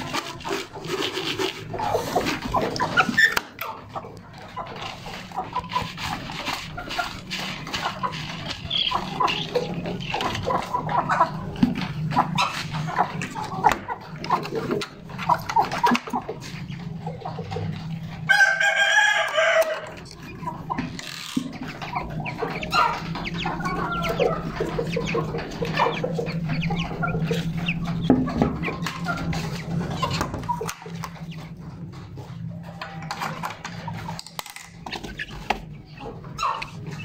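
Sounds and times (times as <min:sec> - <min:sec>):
chickens clucking: 0:00.0 - 0:37.0
chicks cheeping: 0:00.0 - 0:37.0
steady low hum: 0:19.7 - 0:37.0.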